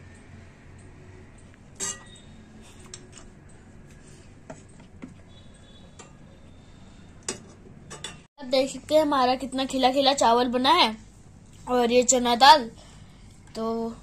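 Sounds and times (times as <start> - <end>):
ladle and glass bowl clinking: 1.8 - 2.3.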